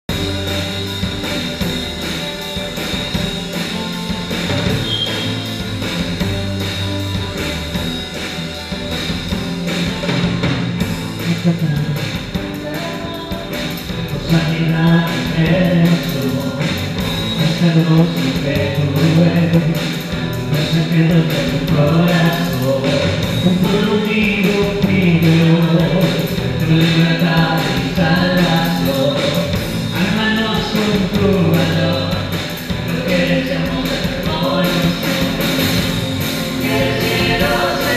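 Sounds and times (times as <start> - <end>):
bass guitar: 0.0 - 37.9
drum kit: 0.0 - 37.9
electric guitars: 0.1 - 37.9
rock band playing: 0.1 - 37.9
people singing: 32.9 - 37.9.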